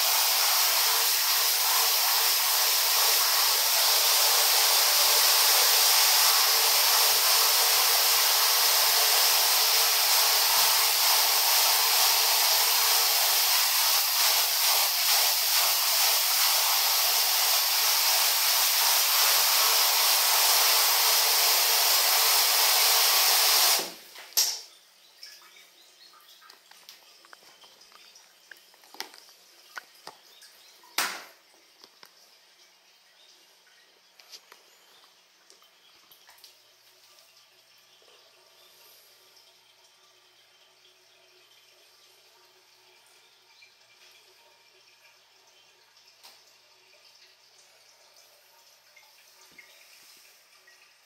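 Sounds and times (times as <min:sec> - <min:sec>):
shower water spraying: 0:00.0 - 0:24.2, 0:49.4 - 0:50.5.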